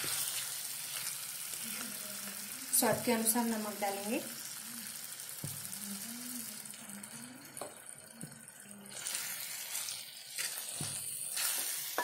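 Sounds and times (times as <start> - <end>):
sauce sizzling in a pan: 0.0 - 12.0
wooden spatula stirring and scraping: 8.2 - 12.0.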